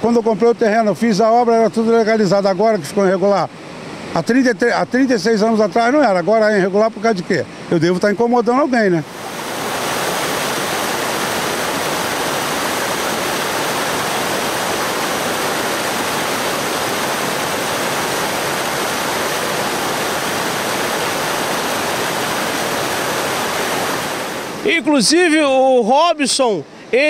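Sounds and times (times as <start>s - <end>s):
water rushing over rocks: 9.0s - 24.8s.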